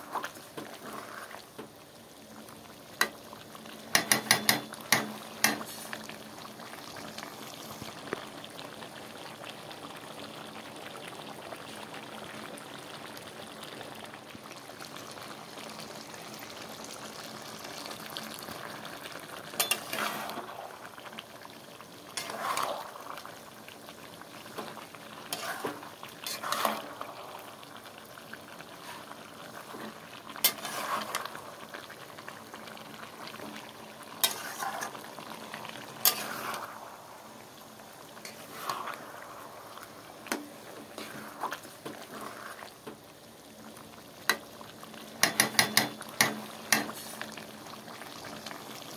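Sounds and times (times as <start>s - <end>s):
curry bubbling and sizzling: 0.0s - 48.9s
metal spatula scraping pan: 19.6s - 20.5s, 22.2s - 22.8s, 25.3s - 26.9s, 30.4s - 31.3s, 34.2s - 35.0s, 36.0s - 36.7s.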